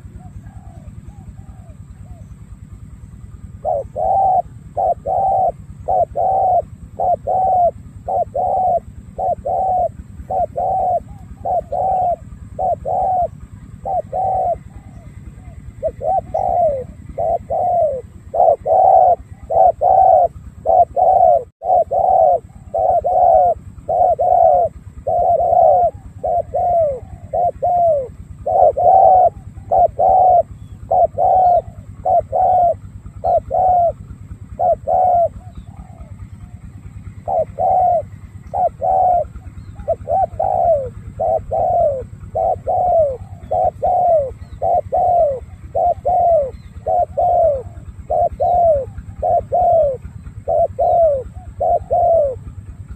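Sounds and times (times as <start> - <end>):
dove cooing: 0.0 - 52.9.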